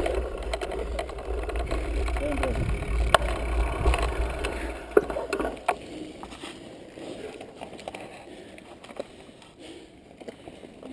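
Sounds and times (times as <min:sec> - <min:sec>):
wind rumble on microphone: 0:00.0 - 0:05.7
bike rattling knocks: 0:00.0 - 0:05.8
bike rolling on dirt trail: 0:00.0 - 0:10.9.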